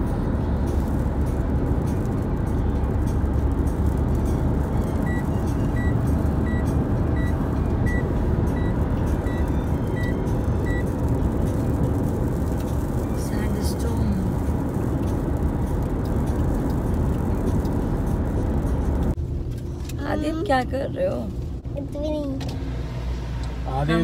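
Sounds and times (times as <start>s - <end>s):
car road and engine rumble: 0.0s - 24.0s
dashboard warning beeps: 5.0s - 10.9s.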